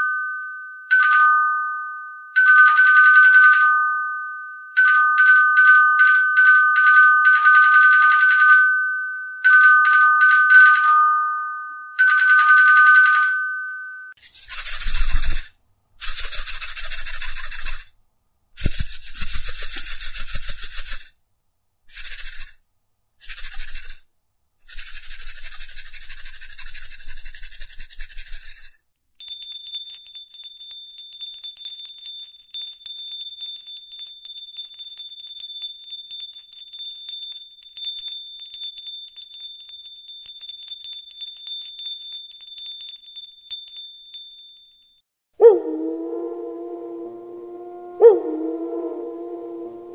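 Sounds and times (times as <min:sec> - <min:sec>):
high bell ringing rapidly: 0:14.2 - 0:17.9, 0:18.6 - 0:21.2, 0:21.9 - 0:22.6, 0:23.2 - 0:45.0
shaken rattling: 0:14.2 - 0:18.0, 0:18.6 - 0:21.2, 0:21.9 - 0:28.9.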